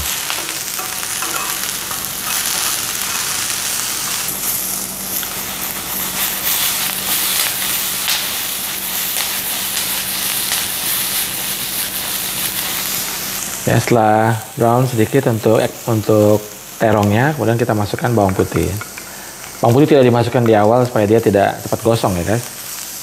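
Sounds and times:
food stirred in pan: 0:00.0 - 0:13.8
food sizzling in a frying pan: 0:00.0 - 0:23.0.

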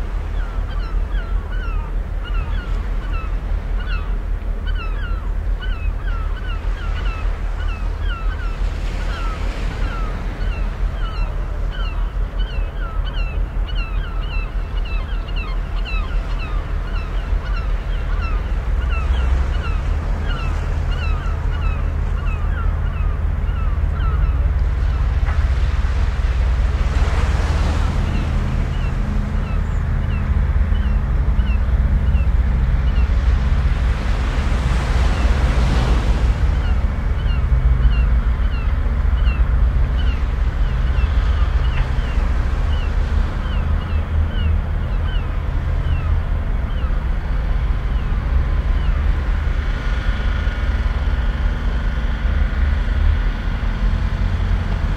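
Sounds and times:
sea water washing on shore: 0:18.2 - 0:54.9.

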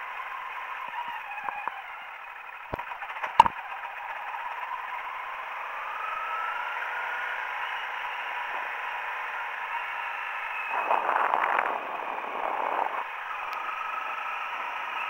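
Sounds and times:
motorcycle engine drone: 0:00.0 - 0:15.0
rough rushing noise: 0:10.5 - 0:13.8.

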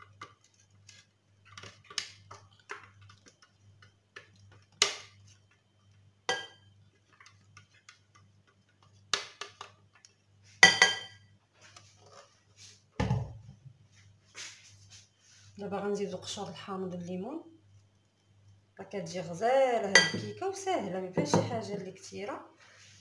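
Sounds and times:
glass bowl clinks: 0:10.6 - 0:11.2, 0:19.9 - 0:20.4.

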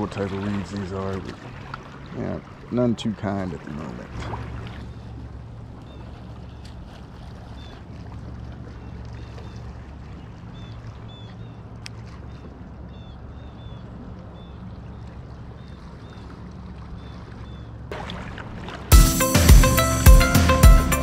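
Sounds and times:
motorboat engine drone: 0:00.0 - 0:21.0.

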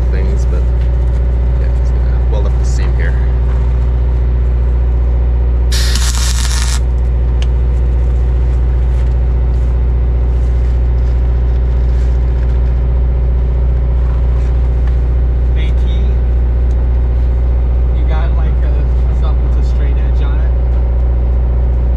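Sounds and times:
low engine drone: 0:00.0 - 0:21.9
welding arc hiss: 0:05.7 - 0:06.8.

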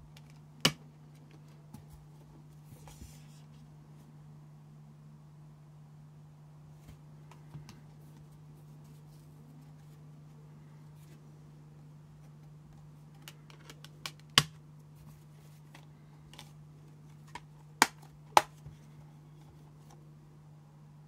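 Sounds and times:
disc case clicks and taps: 0:17.3 - 0:18.6.

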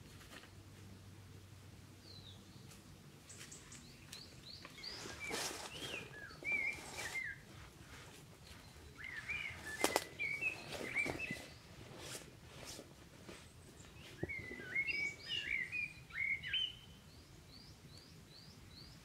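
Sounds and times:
songbird whistling: 0:04.7 - 0:07.4, 0:09.0 - 0:11.6, 0:14.0 - 0:17.0
footsteps on dry leaves: 0:04.8 - 0:14.8.

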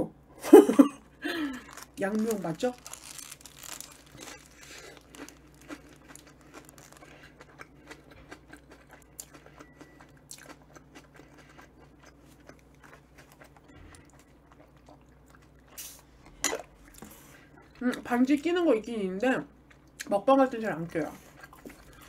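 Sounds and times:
person chewing a sandwich: 0:01.4 - 0:02.0, 0:02.8 - 0:17.9, 0:21.2 - 0:22.0.

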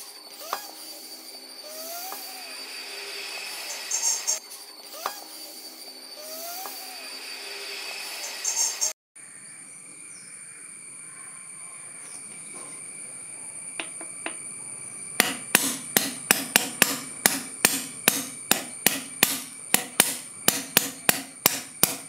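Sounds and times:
stick tapping metal pin: 0:13.8 - 0:14.4, 0:15.2 - 0:22.0.

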